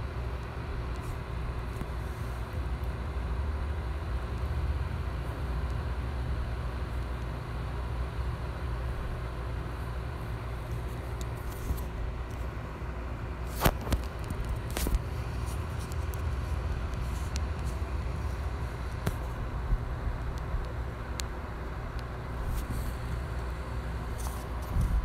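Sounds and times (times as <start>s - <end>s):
low background rumble: 0.0s - 25.0s.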